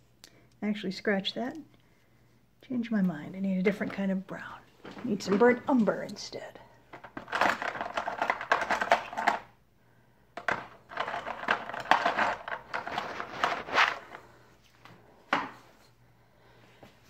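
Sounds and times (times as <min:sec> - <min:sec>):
paint tubes clattering and rustling: 0:06.9 - 0:09.5, 0:10.4 - 0:14.3.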